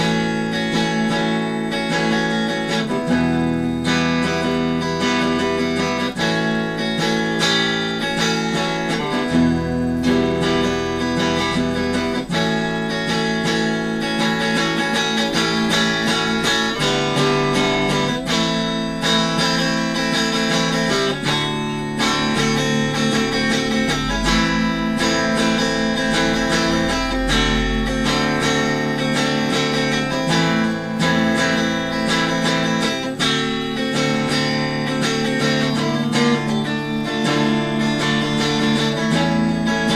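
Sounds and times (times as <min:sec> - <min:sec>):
electric guitar strumming chords: 0:00.0 - 0:39.9.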